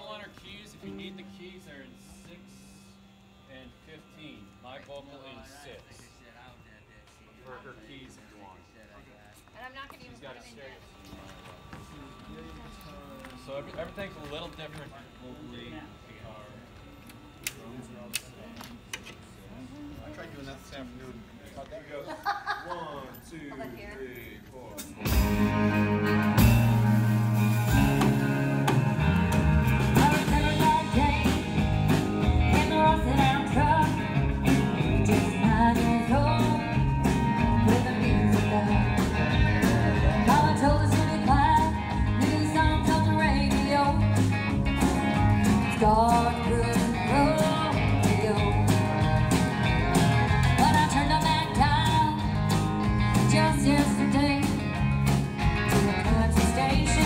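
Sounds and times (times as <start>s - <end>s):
country-rock band playing: 24.8s - 57.0s
lead voice singing: 29.8s - 44.2s.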